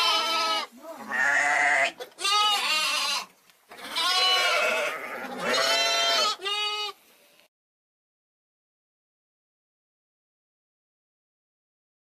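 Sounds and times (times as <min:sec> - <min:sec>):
lamb bleating: 0:00.0 - 0:07.0.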